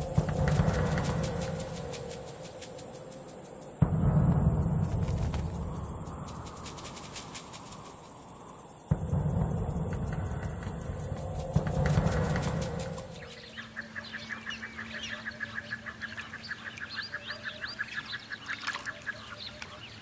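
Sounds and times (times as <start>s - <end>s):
low drum-like rumble: 0.0s - 14.2s
ducks calling: 10.3s - 20.0s.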